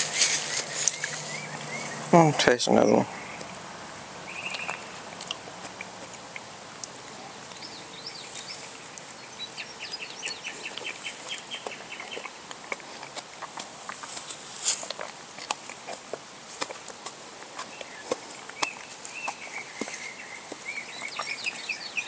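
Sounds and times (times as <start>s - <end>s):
songbird chirping: 0.0s - 22.0s.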